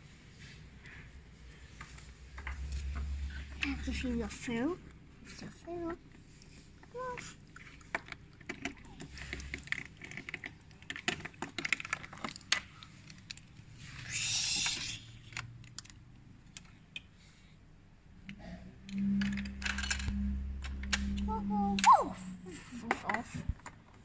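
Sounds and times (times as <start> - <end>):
low steady hum: 0.0 - 24.0
plastic toy pieces clicking: 19.2 - 20.1.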